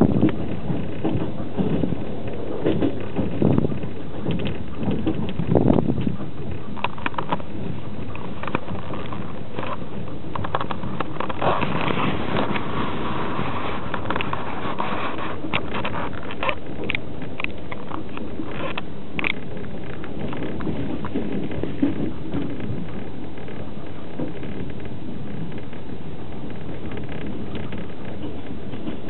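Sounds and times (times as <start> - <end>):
train rumbling inside carriage: 0.0 - 29.0.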